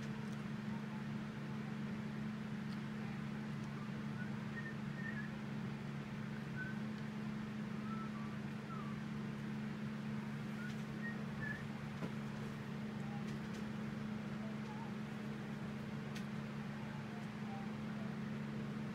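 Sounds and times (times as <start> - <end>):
low machine hum: 0.0 - 18.9.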